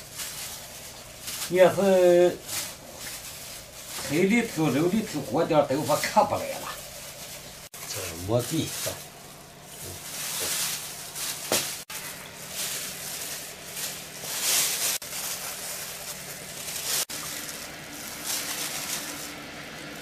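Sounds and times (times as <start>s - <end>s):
plastic bag and gloves rustling: 0.0s - 20.0s.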